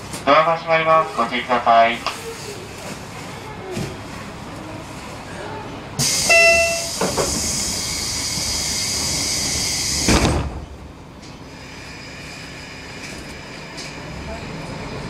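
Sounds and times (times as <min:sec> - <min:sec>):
short beep: 0:06.0 - 0:07.0
loud air hiss: 0:06.0 - 0:10.3
doors shutting thud: 0:10.0 - 0:10.7.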